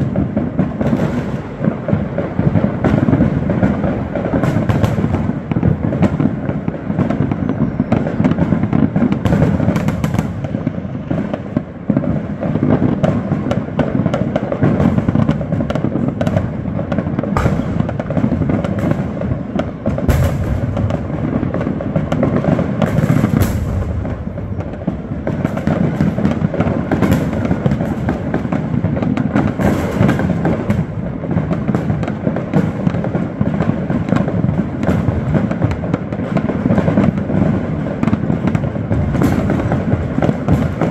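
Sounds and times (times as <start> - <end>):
fireworks crackling and banging: 0.0 - 40.9.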